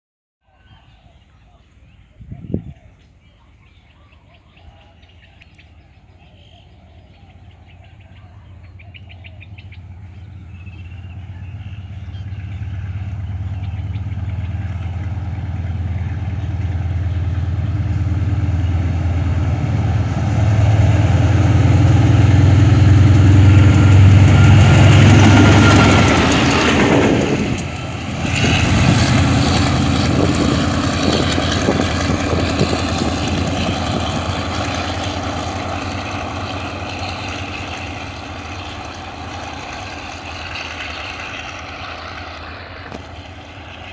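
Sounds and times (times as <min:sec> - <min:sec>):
locomotive engine drone: 0:00.6 - 0:43.9
wheels clattering on rails: 0:09.4 - 0:43.9.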